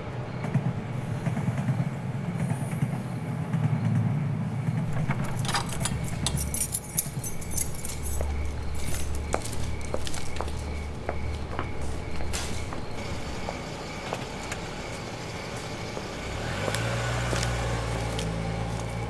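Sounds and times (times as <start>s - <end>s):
footsteps on dry leaves: 9.1s - 12.8s, 16.4s - 19.0s.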